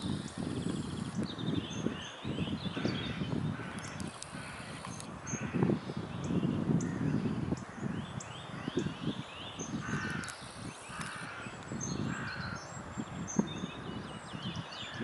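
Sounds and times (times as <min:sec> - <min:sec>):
small birds chirping: 0:00.0 - 0:15.0
harsh caw-like bird calls: 0:01.8 - 0:06.0, 0:06.8 - 0:12.8, 0:14.8 - 0:15.0.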